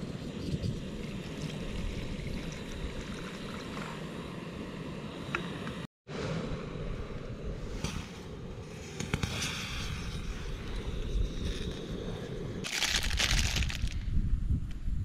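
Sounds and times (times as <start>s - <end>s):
plastic food pouch crinkling: 12.7s - 14.0s.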